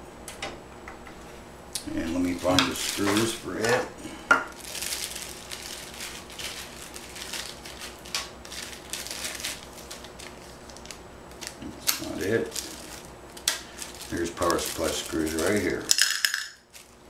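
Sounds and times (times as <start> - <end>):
small metal parts clinking: 15.2 - 16.7.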